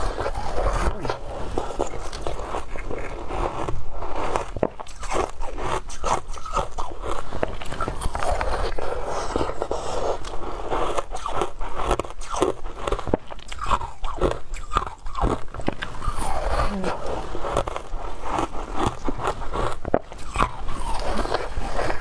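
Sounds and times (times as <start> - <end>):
chewing crunchy ice: 0.0 - 22.0.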